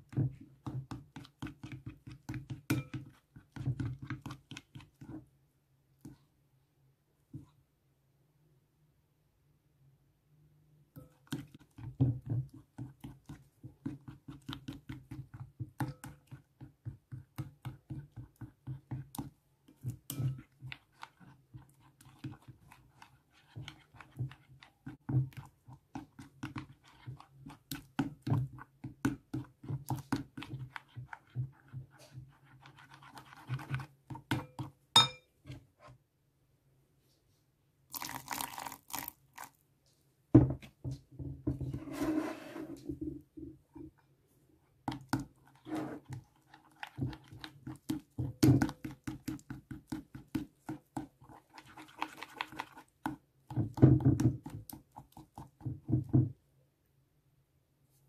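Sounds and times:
spatula stirring wet slime: 0.0 - 6.5, 10.8 - 36.1, 37.8 - 39.7, 40.6 - 56.5
spoon knocking against glass bowl: 34.4 - 35.3.

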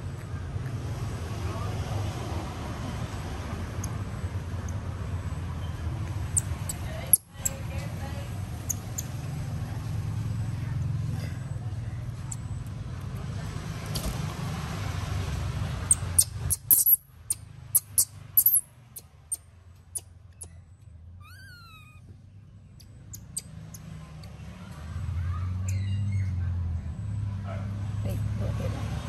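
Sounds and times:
monkey squeak: 5.6 - 7.8, 8.5 - 9.4, 15.8 - 20.6, 21.2 - 22.1, 22.8 - 24.0, 25.6 - 26.4.

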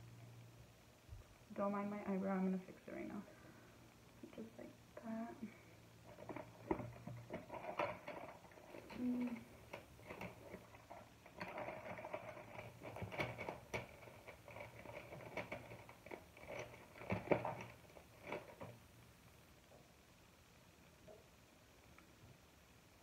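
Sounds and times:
makeup items tapping and rustling: 6.1 - 18.8.

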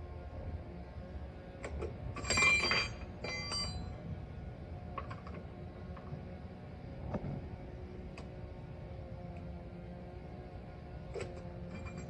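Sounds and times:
ringing metal clanks: 2.2 - 4.0, 11.2 - 12.0.

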